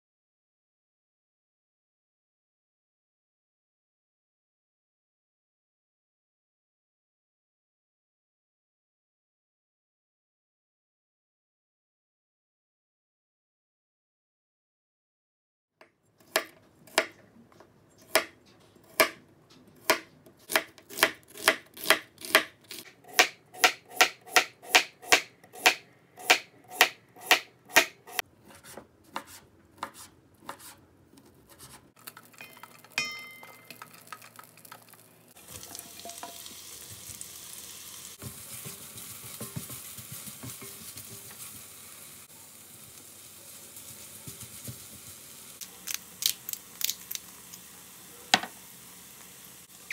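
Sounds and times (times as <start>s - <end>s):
knife chopping on wooden board: 16.2s - 17.2s, 18.0s - 19.2s, 19.8s - 30.8s
food sizzling in pan: 32.0s - 49.9s
metallic clink: 32.4s - 34.0s.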